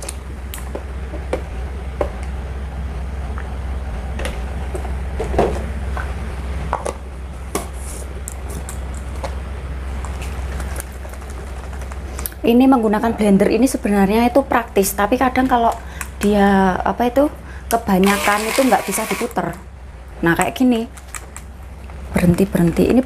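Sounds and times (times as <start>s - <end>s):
blender motor straining: 18.0s - 19.4s.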